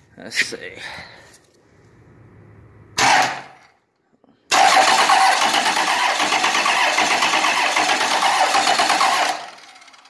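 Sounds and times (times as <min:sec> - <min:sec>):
starter motor cranking diesel engine: 0:03.0 - 0:03.6, 0:04.5 - 0:10.0.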